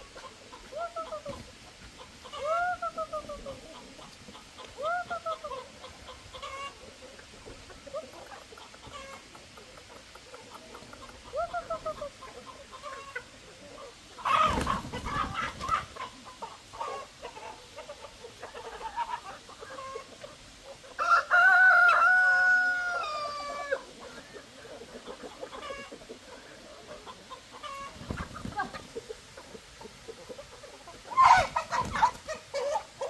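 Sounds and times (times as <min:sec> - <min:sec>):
chickens clucking: 0:00.0 - 0:33.0
rooster crowing: 0:21.0 - 0:23.8.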